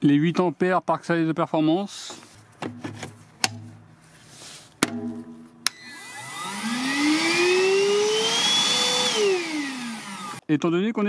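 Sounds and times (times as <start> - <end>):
vacuum motor whine: 5.7 - 10.4.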